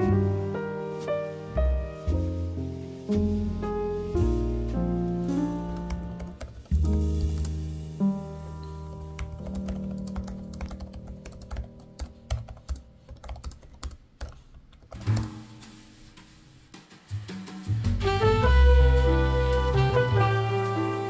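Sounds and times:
soft background music: 0.0 - 13.0, 15.0 - 21.0
laptop keyboard typing: 9.0 - 15.0.

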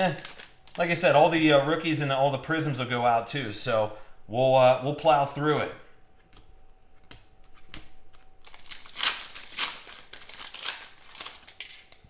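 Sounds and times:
foil wrapper crinkling and tearing: 0.0 - 1.1, 8.1 - 12.0.

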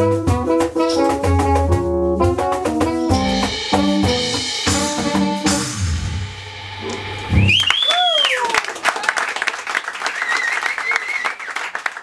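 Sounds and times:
jazz band playing: 0.0 - 7.7
audience member cheering: 6.8 - 9.2.

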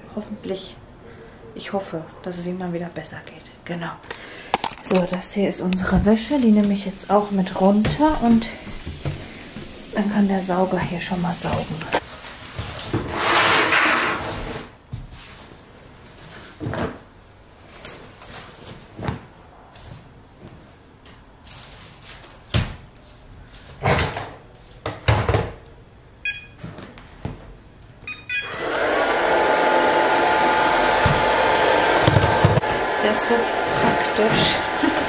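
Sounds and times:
robot vacuum beeps: 26.2 - 26.6, 28.1 - 28.7
robot vacuum motor whine: 28.4 - 32.8.

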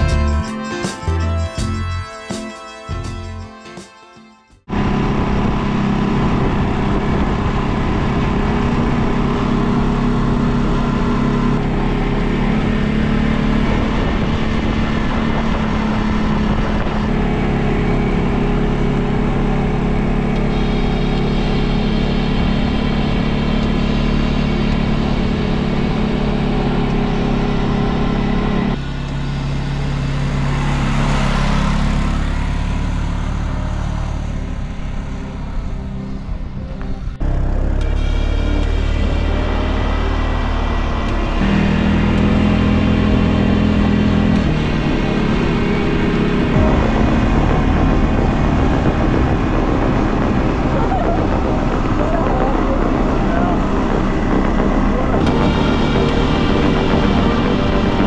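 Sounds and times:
quad engine running on gravel: 44.4 - 58.0.

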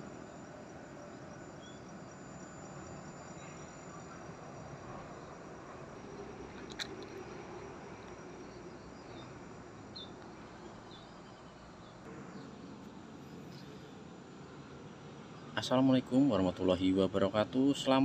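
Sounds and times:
insects chirping: 0.0 - 17.9
low background hum: 0.0 - 18.0.

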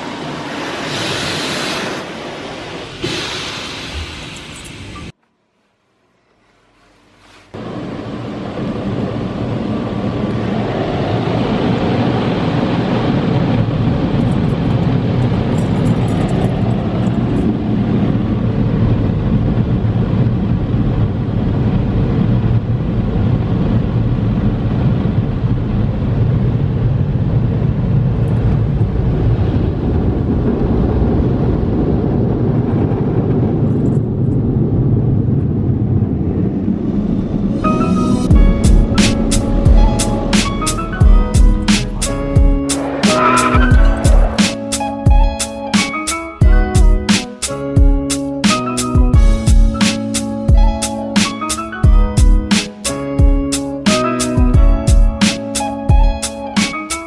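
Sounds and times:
car wash jets rushing: 0.0 - 5.1.

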